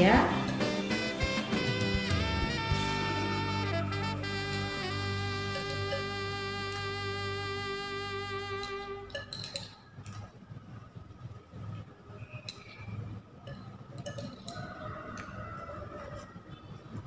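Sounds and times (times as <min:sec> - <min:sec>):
sustained background music note: 0:00.0 - 0:09.2
glass test tube clinks: 0:05.5 - 0:06.2, 0:08.6 - 0:09.8.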